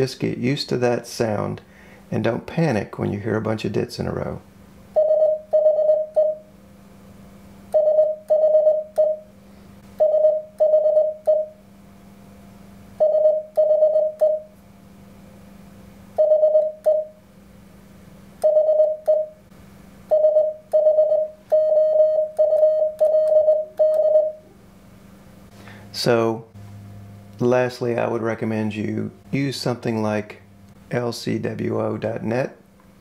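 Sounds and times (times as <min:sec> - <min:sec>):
morse code beeps: 0:05.0 - 0:06.5, 0:07.7 - 0:09.3, 0:10.0 - 0:11.6, 0:13.0 - 0:14.5, 0:16.2 - 0:17.2, 0:18.4 - 0:19.4, 0:20.1 - 0:24.4.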